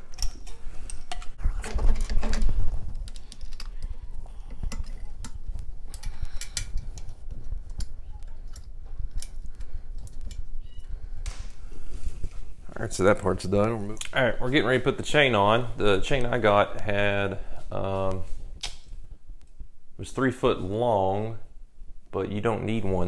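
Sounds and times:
hands handling metal parts: 0.0 - 12.4.

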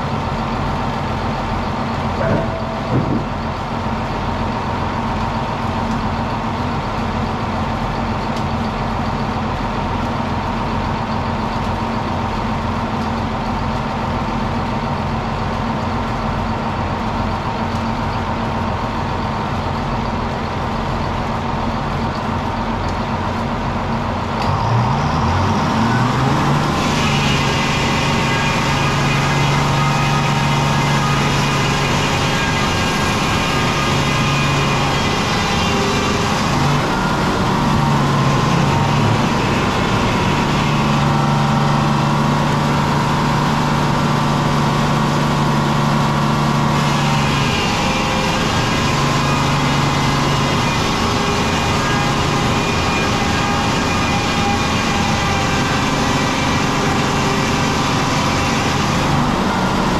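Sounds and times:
engine drone: 0.0 - 59.9
saw cutting log: 2.2 - 3.4, 24.4 - 59.9.

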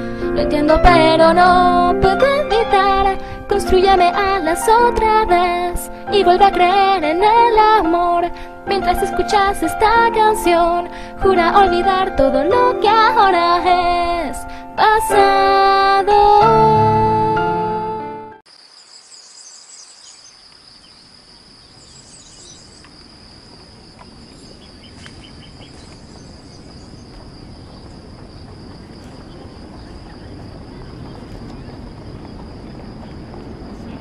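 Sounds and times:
insects droning: 0.0 - 17.1, 18.5 - 34.0
bird chirps: 18.7 - 23.0, 24.0 - 28.1, 28.7 - 33.4.

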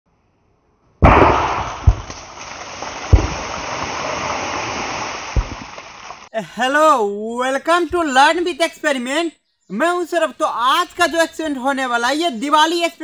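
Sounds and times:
firecracker bangs: 1.0 - 5.8
dirt raining down: 1.0 - 6.3.

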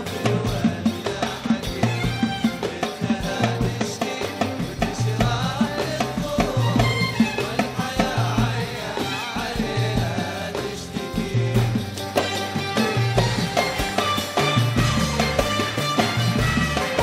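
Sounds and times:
violin section playing melody: 12.2 - 17.0.

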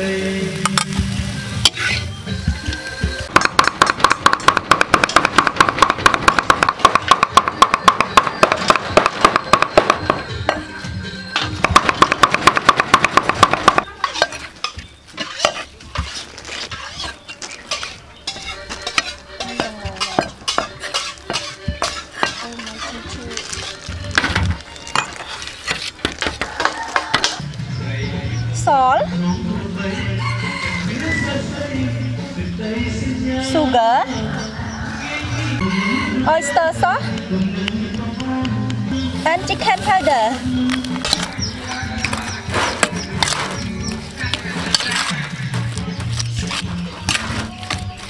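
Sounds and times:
background music: 0.0 - 15.8, 16.4 - 48.0
knives chopping on wooden block: 3.3 - 10.3, 11.6 - 13.9.

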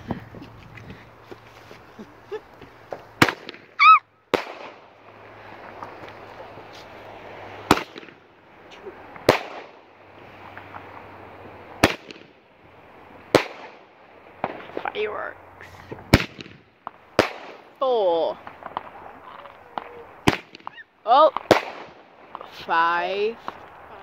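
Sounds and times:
fireworks crackling hiss: 0.0 - 24.0
fireworks bangs: 2.7 - 24.0.

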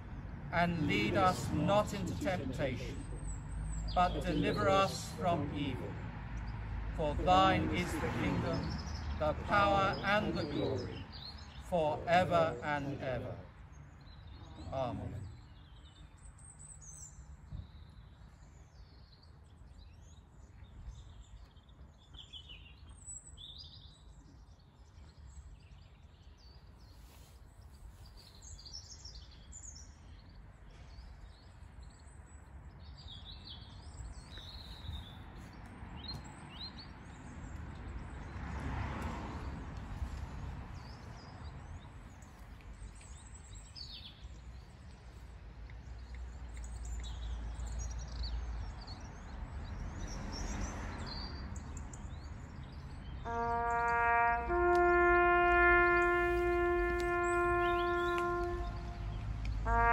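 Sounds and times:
low outdoor rumble: 0.0 - 13.5
small birds chirping: 0.6 - 38.4, 39.7 - 59.9.

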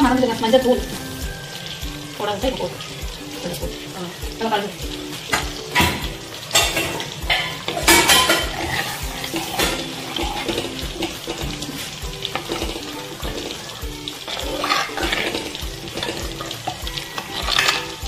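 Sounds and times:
background music with beat: 0.0 - 18.0
metal ladle scraping a pot: 6.6 - 12.8, 14.3 - 17.9.

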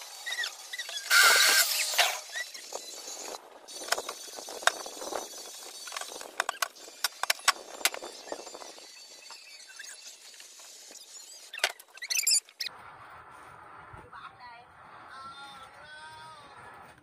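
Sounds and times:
loud scraping rasp: 0.0 - 12.3.

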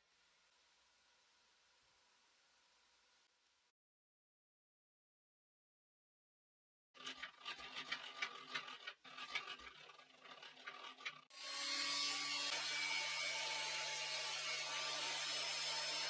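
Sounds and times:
hand crank clicking and rubbing: 7.0 - 11.3.

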